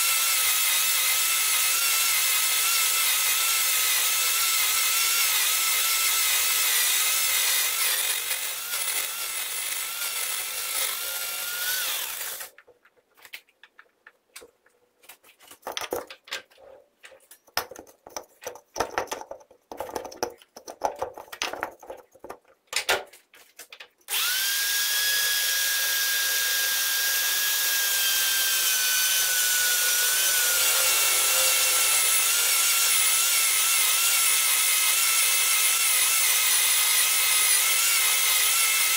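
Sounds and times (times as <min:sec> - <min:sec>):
metal lathe whining and cutting: 0:00.1 - 0:12.5, 0:24.1 - 0:38.9
clicks and knocks from handling: 0:12.5 - 0:24.0.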